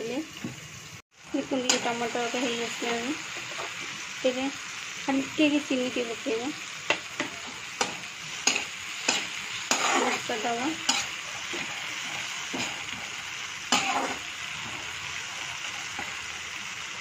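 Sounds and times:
food sizzling in oil: 0:00.0 - 0:17.0
spatula scraping pan: 0:07.2 - 0:15.0.

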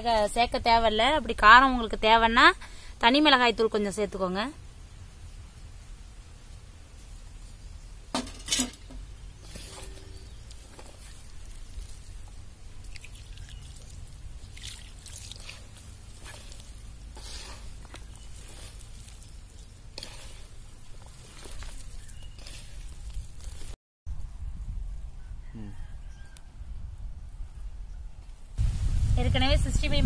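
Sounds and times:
hand squishing wet food: 0:09.3 - 0:23.8.

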